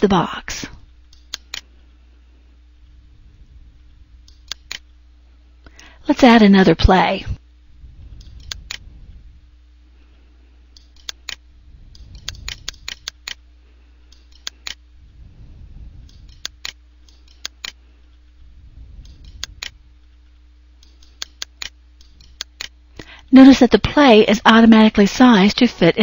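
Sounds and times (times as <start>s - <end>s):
faint electrical hum: 0.0s - 26.0s
computer mouse clicking: 1.1s - 1.7s, 8.2s - 8.9s, 10.7s - 13.4s, 14.1s - 14.8s, 16.0s - 17.8s, 19.0s - 19.8s, 20.8s - 22.7s.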